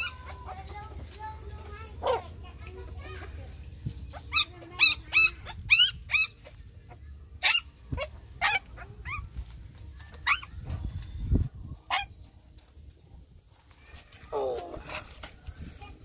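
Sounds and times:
newborn puppies squealing yelps: 0.0 - 0.4, 4.1 - 6.6, 7.4 - 9.3, 10.2 - 10.7, 11.9 - 12.1.

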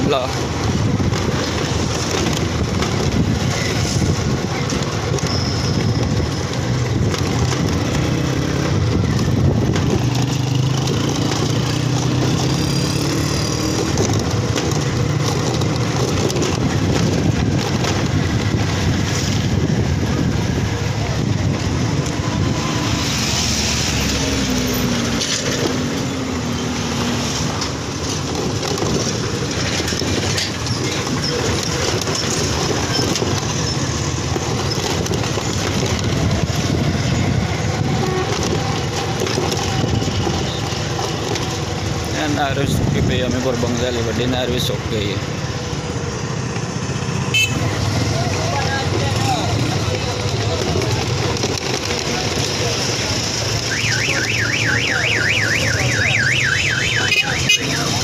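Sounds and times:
road rumble: 0.0 - 58.0
wind: 0.0 - 58.0
motorcycle engine running: 0.3 - 23.2.

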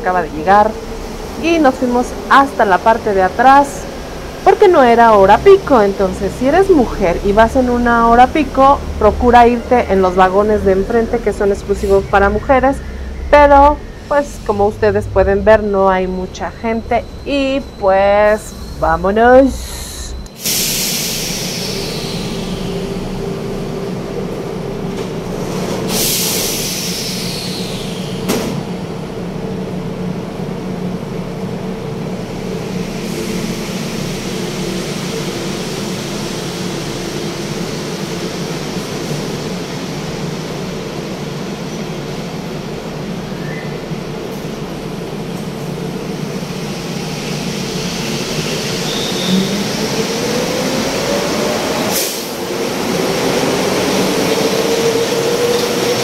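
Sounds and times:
train motors humming: 0.0 - 56.0
air hisses: 19.6 - 23.2, 25.9 - 28.3.

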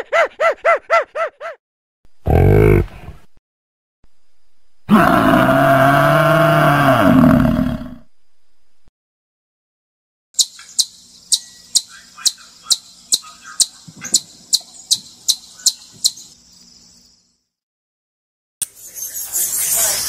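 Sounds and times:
chipmunk chip calls: 10.4 - 16.4.

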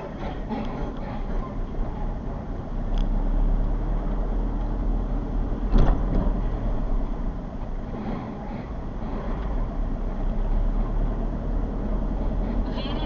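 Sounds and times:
engine and road rumble: 0.0 - 13.0
sharp thump: 5.7 - 6.4.

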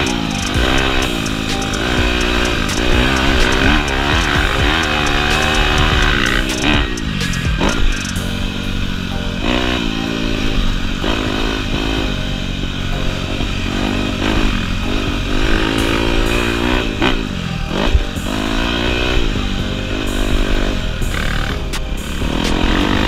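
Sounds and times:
dirt bike engine revving: 0.0 - 12.8, 13.4 - 23.0.

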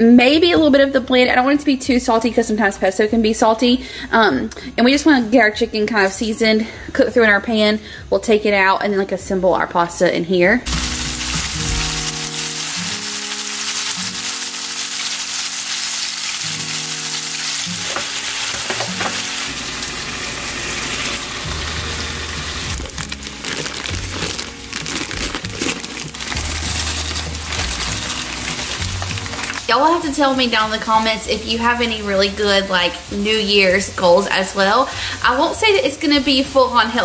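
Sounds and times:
background music: 0.0 - 37.0
chicken sizzling in hot oil: 10.7 - 37.0.

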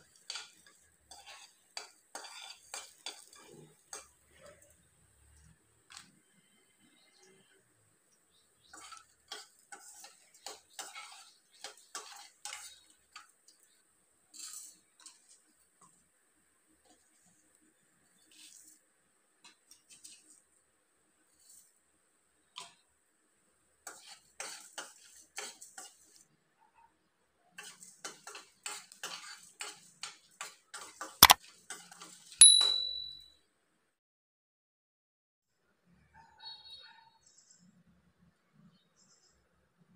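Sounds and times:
spoon scraping steel pan: 0.0 - 4.6, 8.6 - 15.9, 23.8 - 26.2, 27.6 - 33.2
bright ringing ding: 32.4 - 33.3.

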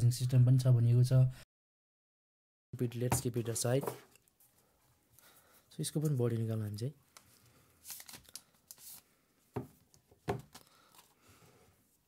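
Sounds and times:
plastic film being peeled: 7.8 - 9.0.

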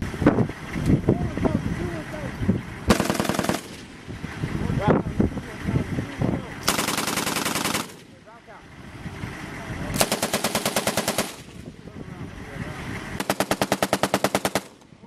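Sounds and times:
machine gun firing bursts: 2.9 - 3.9, 6.6 - 8.1, 10.0 - 11.6, 13.2 - 14.8.

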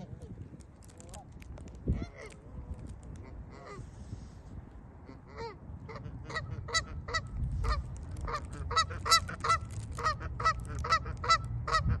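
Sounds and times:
geese honking: 5.0 - 12.0.

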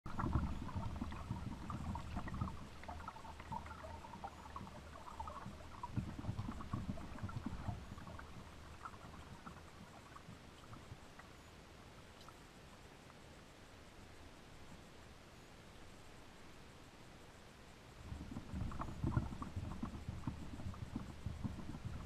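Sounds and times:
water bumping against kayak hull: 18.1 - 22.0.

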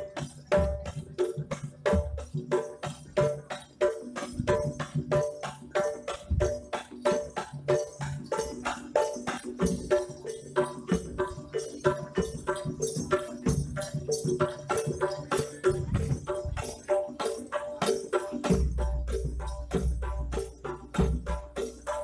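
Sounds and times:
gamelan percussion music: 0.0 - 22.0.

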